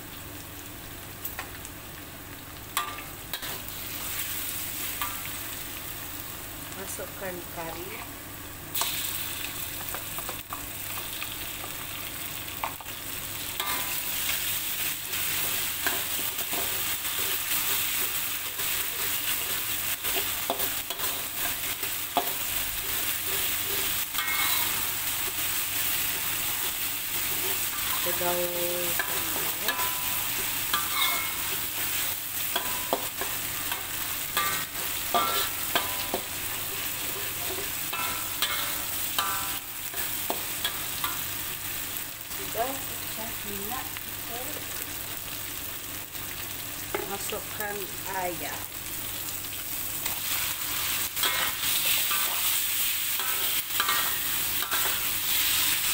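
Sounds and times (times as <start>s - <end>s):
food sizzling in hot oil: 0.0s - 55.9s
metal spatula scraping wok: 13.6s - 41.3s, 50.0s - 55.9s.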